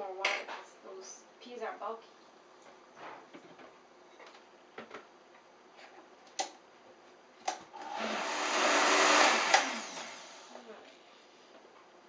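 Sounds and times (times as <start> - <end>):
blender motor blending: 7.8 - 10.6.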